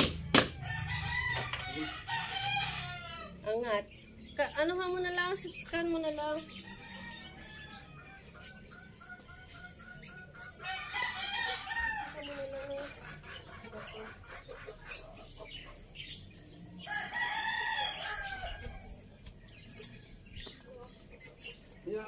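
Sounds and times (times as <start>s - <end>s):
sharp knocks: 0.0s - 0.6s
rooster crowing: 0.5s - 3.4s, 10.6s - 12.2s, 16.9s - 18.9s.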